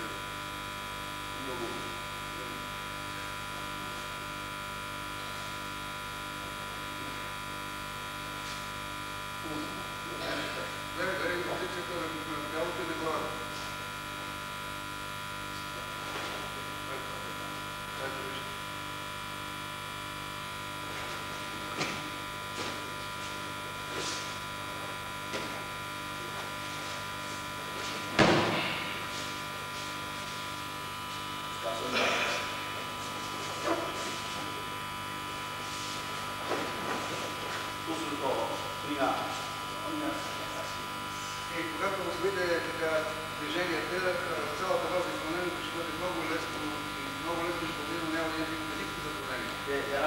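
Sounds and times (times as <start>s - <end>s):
electrical hum with high whine: 0.0s - 50.0s
feet knocking on mat: 27.8s - 29.2s
body thudding onto mat: 27.9s - 29.0s.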